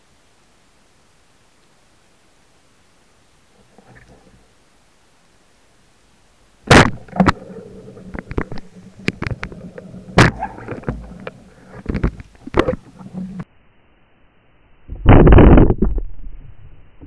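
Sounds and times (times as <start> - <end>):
low steady hum: 0.0 - 17.0
underwater clicks and knocks: 6.7 - 13.4.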